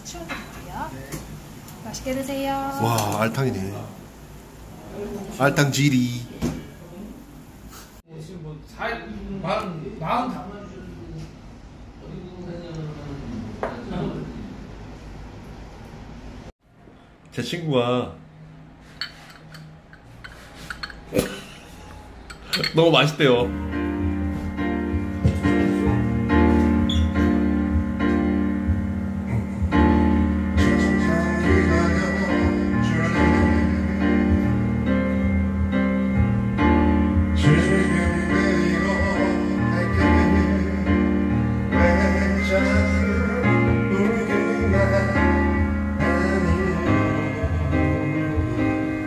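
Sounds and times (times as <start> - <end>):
piano ballad chords: 21.1 - 49.0
karaoke backing track: 23.4 - 49.0
man singing into microphone: 30.6 - 34.6, 37.4 - 49.0.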